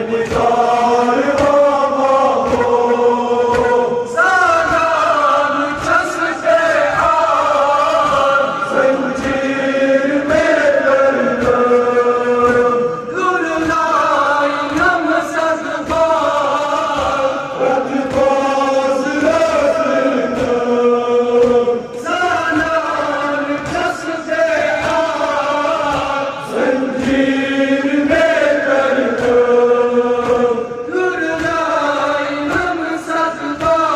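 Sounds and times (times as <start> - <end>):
men chanting together: 0.0 - 33.9
chest-beating thumps: 0.2 - 4.1.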